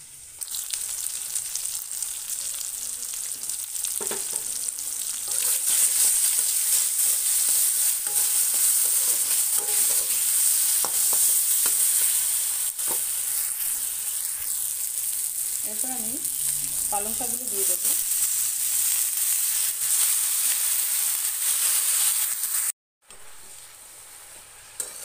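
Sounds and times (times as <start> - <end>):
vegetables sizzling in hot oil: 0.0 - 25.0
spatula scraping a pan: 3.3 - 14.6, 24.2 - 25.0.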